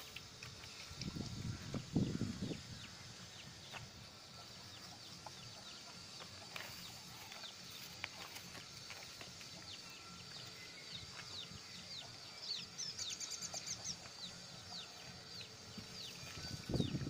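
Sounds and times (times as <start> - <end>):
birds chirping: 0.0 - 17.0
bird trill: 9.6 - 17.0.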